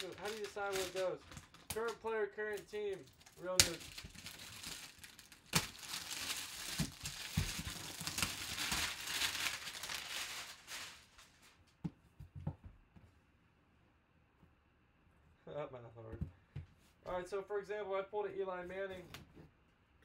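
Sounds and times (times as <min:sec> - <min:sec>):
plastic wrapping crinkling and tearing: 0:00.0 - 0:11.6.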